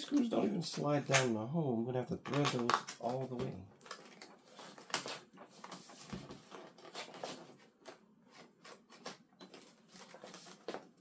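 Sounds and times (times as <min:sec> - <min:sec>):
plastic parts clicking and scraping: 0:02.2 - 0:11.0.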